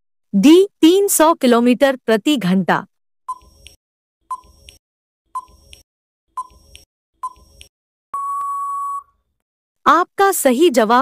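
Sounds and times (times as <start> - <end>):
long steady beep: 8.2 - 9.1
short countdown beeps: 8.2 - 9.1.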